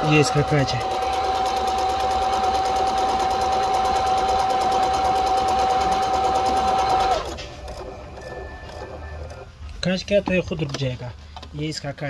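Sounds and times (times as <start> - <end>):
sewing machine motor whine: 0.0 - 9.6.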